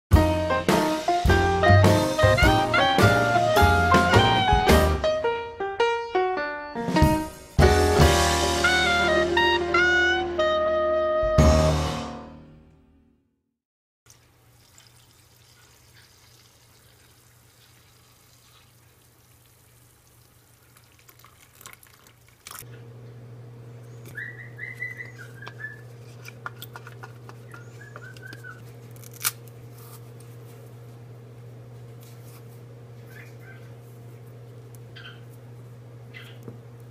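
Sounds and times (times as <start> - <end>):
high whistling chirps: 23.9 - 25.9
banana being peeled: 25.1 - 30.6.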